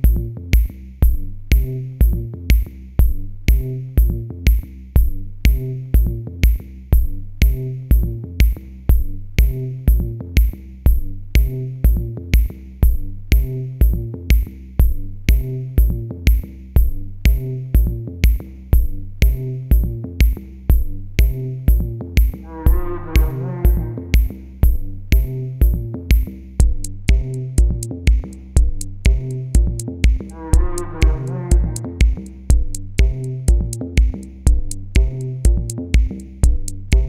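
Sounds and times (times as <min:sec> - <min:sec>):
electronic music with drum machine: 0:00.0 - 0:37.0.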